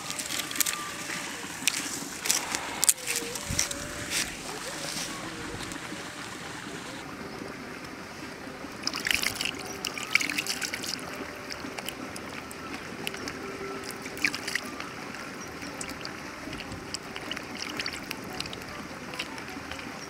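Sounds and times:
wet squelching of raw chicken: 0.0 - 7.0, 8.8 - 20.0.

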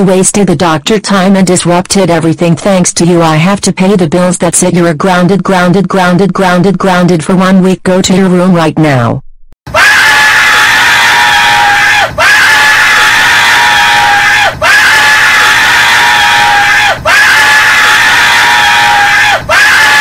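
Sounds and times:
cartoon crying scream: 9.7 - 20.0.

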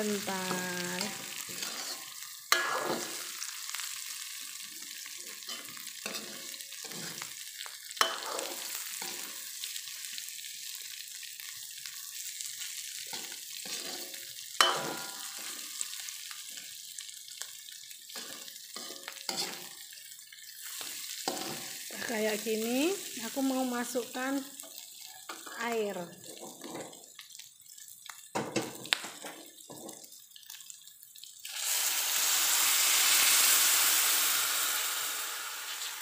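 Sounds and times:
food sizzling in a wok: 0.0 - 36.0
metal spatula scraping: 1.0 - 3.4, 5.3 - 7.3, 8.0 - 9.4, 13.1 - 15.8, 18.2 - 19.8.

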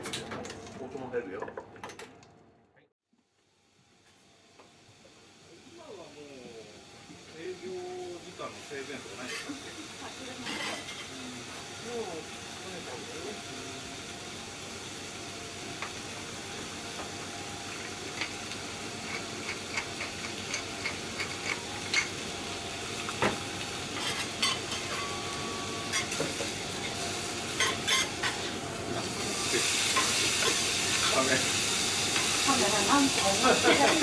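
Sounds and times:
onions sizzling on hot plate: 3.4 - 34.0
steak sizzling on griddle: 3.6 - 34.0
steel spatula scraping: 10.4 - 11.1.

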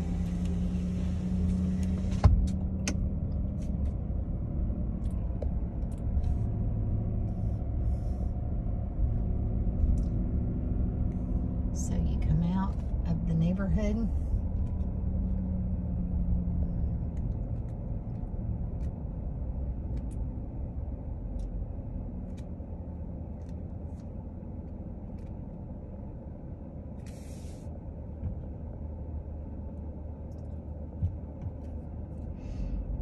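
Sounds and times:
vehicle engine rumble: 0.0 - 33.0
short hiss: 27.1 - 27.7.

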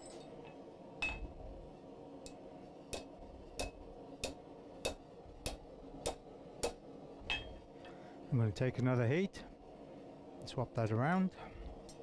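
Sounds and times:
hammer striking hot steel on anvil: 1.0 - 1.3, 2.2 - 7.7.

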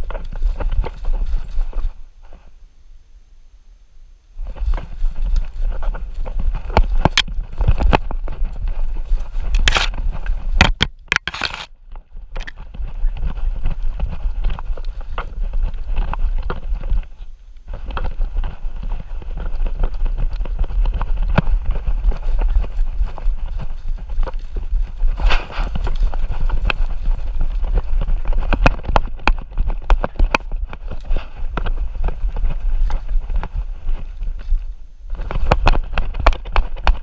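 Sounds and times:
paws scuffing the ground: 0.0 - 2.6, 4.4 - 10.6, 11.2 - 37.0
camera mount knocking and rubbing: 9.6 - 11.7.

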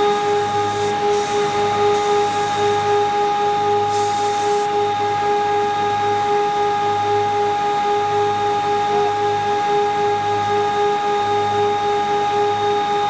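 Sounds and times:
compressed air blow gun hissing: 0.0 - 3.2, 3.8 - 4.7.

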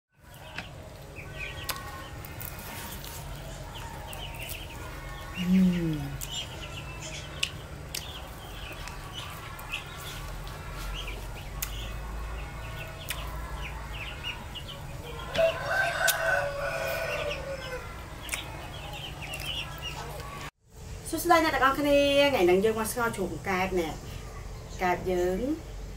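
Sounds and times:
chickens clucking: 0.2 - 20.5
chicks peeping: 0.2 - 20.5
low falling vocal sound: 5.3 - 6.2
rooster crowing: 14.2 - 18.1.

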